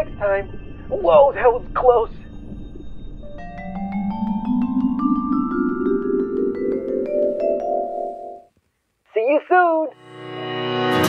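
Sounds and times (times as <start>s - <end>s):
rising warbling tone: 2.1s - 8.4s
quick ringing notes climbing: 3.2s - 8.5s.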